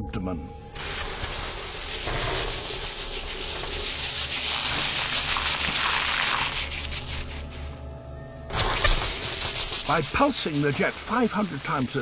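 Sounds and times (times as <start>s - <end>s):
beetle spray crackling hiss: 0.8s - 7.5s, 8.5s - 12.0s.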